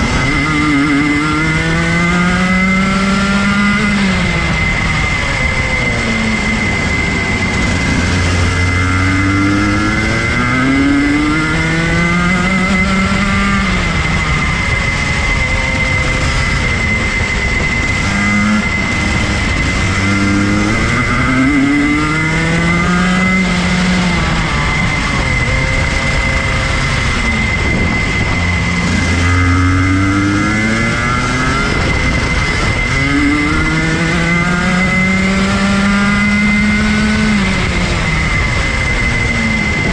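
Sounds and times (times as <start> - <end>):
kart engine revving: 0.0 - 39.9
steady high tone: 0.0 - 39.9.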